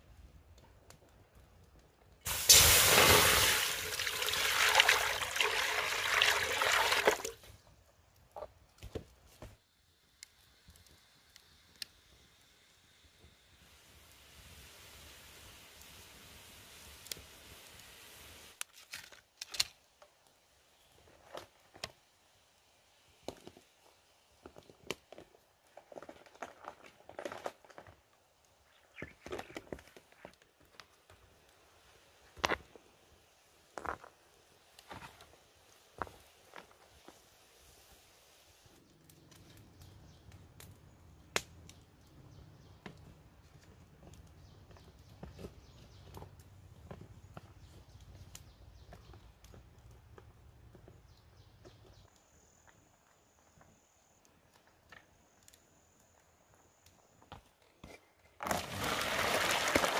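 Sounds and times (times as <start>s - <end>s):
firewood clicks and crackles: 0.0s - 12.5s, 13.6s - 59.9s
water hissing in hot wok: 2.3s - 7.4s, 9.8s - 18.6s, 35.6s - 38.8s.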